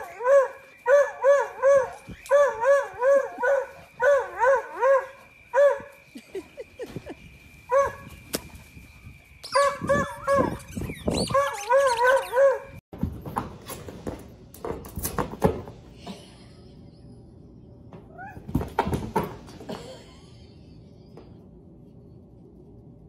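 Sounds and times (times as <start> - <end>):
dog whining: 9.5 - 12.8, 18.1 - 18.6.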